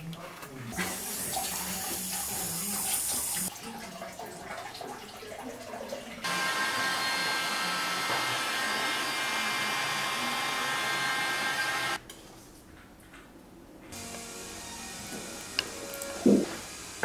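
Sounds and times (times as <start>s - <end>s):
hot-air dryer blowing: 0.8s - 3.5s, 6.2s - 12.0s, 14.0s - 17.0s
motor whining: 6.2s - 12.0s.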